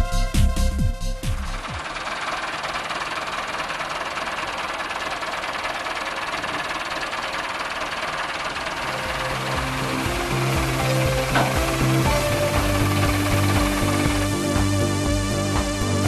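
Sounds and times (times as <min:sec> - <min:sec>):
tractor engine running: 0:00.0 - 0:16.0.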